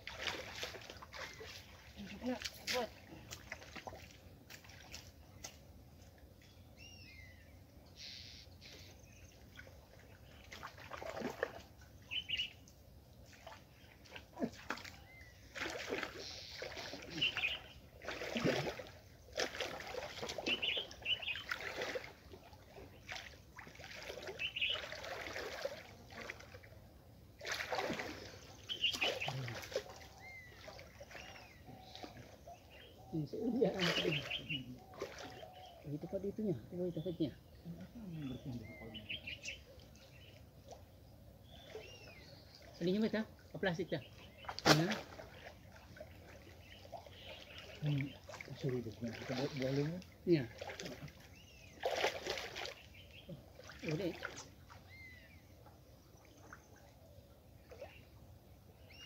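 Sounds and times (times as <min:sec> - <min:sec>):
muddy water splashing: 0:00.0 - 0:06.8, 0:07.5 - 0:59.0
bird chirps: 0:06.4 - 0:09.5, 0:12.0 - 0:12.6, 0:16.1 - 0:17.8, 0:20.4 - 0:21.6, 0:24.3 - 0:25.0, 0:28.1 - 0:36.2, 0:36.8 - 0:40.4, 0:41.4 - 0:42.9, 0:58.8 - 0:59.0.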